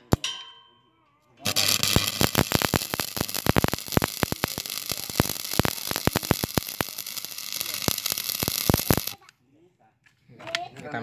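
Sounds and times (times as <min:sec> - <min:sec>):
welding arc crackles and pops: 0:01.4 - 0:09.2
welding arc frying hiss: 0:01.4 - 0:09.2.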